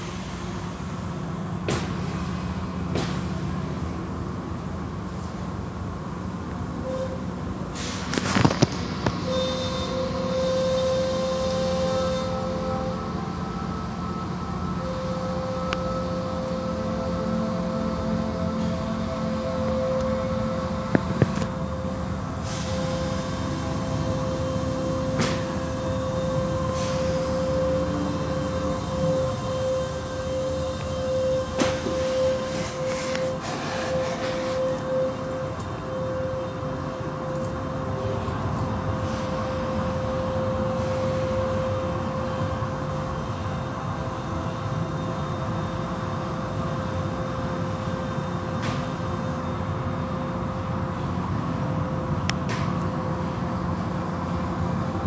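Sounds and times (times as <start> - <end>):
car wash machinery hum: 0.0 - 55.0
steady machine whine: 0.0 - 55.0
air hiss: 7.8 - 9.2, 26.7 - 27.6.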